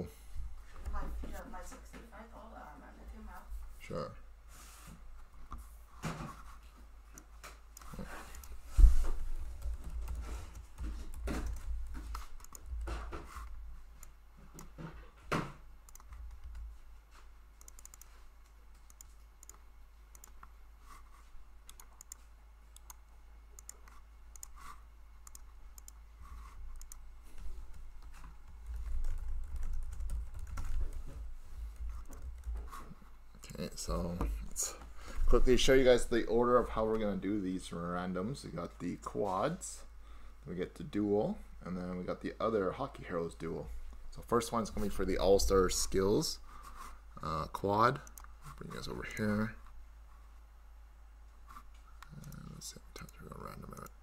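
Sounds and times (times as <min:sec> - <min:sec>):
keyboard typing and clicking: 0:07.2 - 0:08.6, 0:09.5 - 0:13.0, 0:15.9 - 0:16.7, 0:17.6 - 0:20.5, 0:21.7 - 0:22.2, 0:23.6 - 0:27.0, 0:27.7 - 0:31.0, 0:31.8 - 0:32.6.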